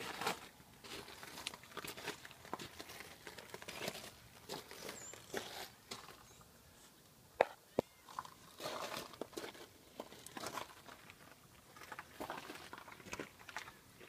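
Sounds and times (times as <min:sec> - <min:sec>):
footsteps on gravel: 0:00.0 - 0:06.4, 0:07.4 - 0:14.0.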